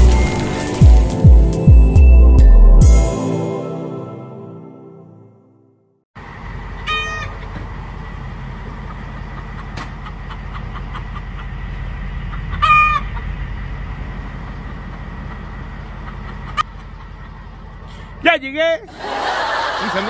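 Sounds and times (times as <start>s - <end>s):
chickens squawking: 6.8s - 7.6s, 8.7s - 13.4s, 14.4s - 17.9s.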